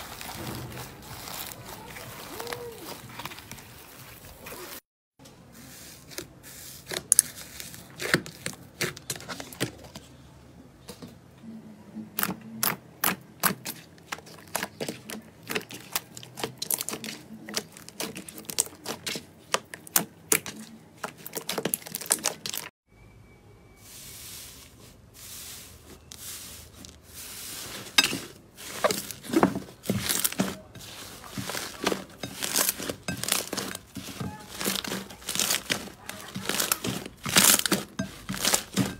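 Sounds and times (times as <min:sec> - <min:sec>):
slime crackling and popping: 0:31.7 - 0:38.8.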